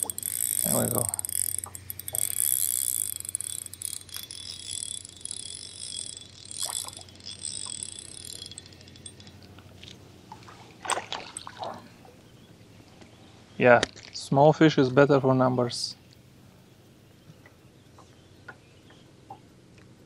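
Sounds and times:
fishing reel gears whirring: 0.0 - 10.3, 10.9 - 12.0.

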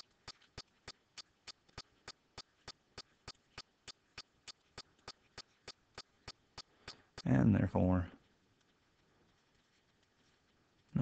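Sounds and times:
faint ticking: 0.0 - 7.4.

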